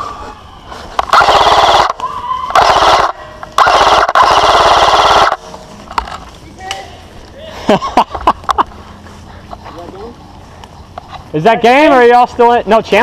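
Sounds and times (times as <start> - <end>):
person screaming: 2.0 - 2.6.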